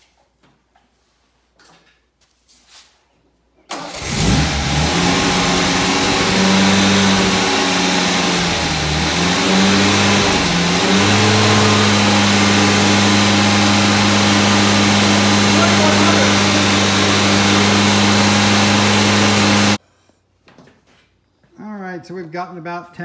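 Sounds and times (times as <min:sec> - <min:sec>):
car engine revving: 0:03.8 - 0:19.8.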